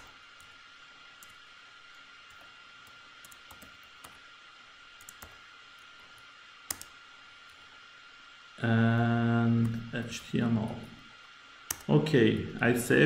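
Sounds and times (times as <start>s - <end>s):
keyboard keystroke clicks: 11.7s - 11.9s.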